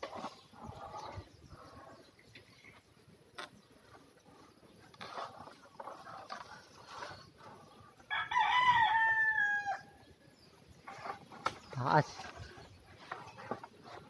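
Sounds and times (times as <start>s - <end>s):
rooster crowing: 8.1s - 10.0s.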